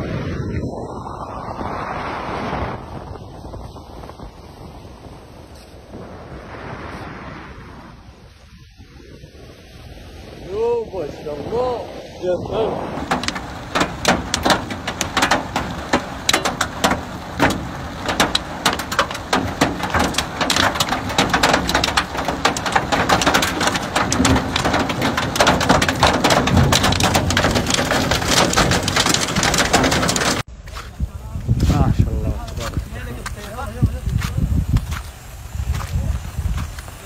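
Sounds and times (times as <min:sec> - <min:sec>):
rush of hailstorm: 0:09.6 - 0:37.0
hailstones striking ground: 0:12.8 - 0:37.0.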